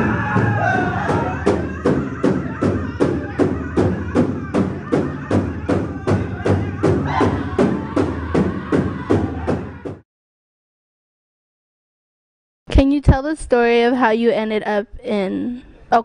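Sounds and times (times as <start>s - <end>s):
music with steady drum beat: 0.0s - 10.0s
voices singing: 0.0s - 10.0s.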